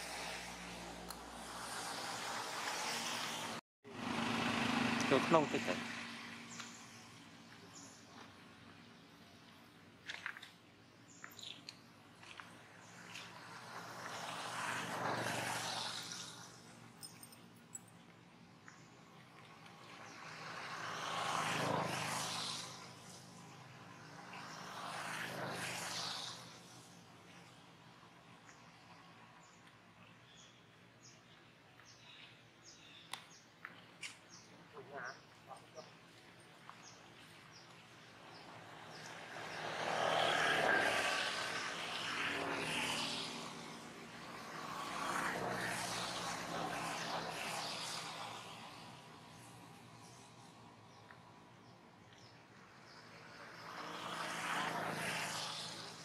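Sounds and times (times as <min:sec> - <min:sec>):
distant engine drone: 0:00.0 - 0:08.5, 0:34.0 - 0:50.2
motor vehicles passing by: 0:00.0 - 0:56.0.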